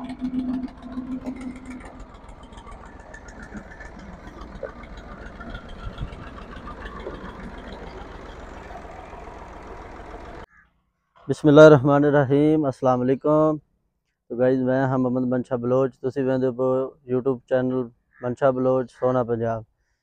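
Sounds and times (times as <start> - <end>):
humming tone: 0.0 - 10.5
tractor diesel engine running: 0.0 - 10.5.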